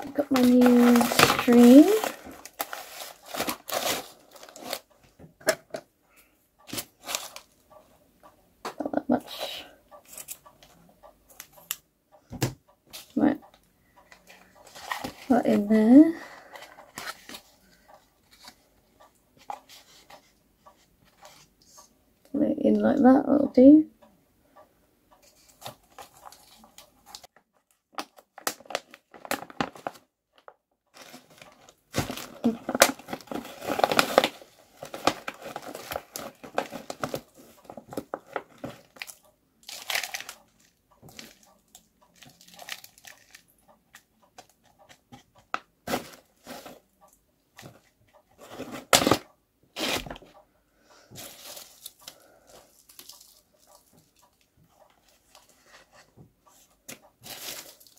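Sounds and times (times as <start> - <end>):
hands rustling potting soil: 0.0 - 4.9.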